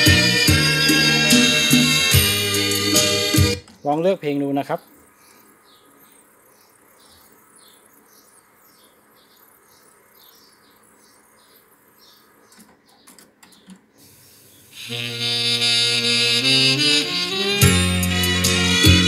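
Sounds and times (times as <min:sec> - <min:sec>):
music through speakers: 0:00.0 - 0:03.6, 0:15.5 - 0:19.0.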